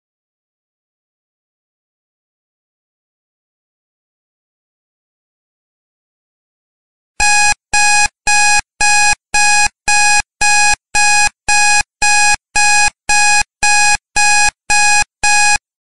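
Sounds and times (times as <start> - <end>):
timer alarm beeping: 7.2 - 15.6.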